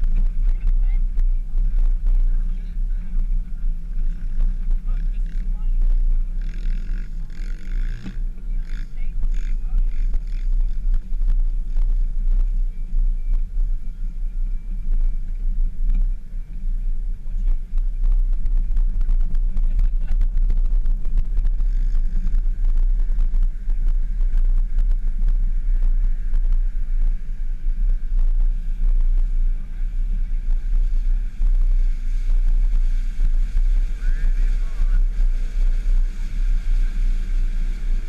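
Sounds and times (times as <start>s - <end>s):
engine low rumble: 0.0s - 38.0s
wind on microphone: 0.0s - 38.0s.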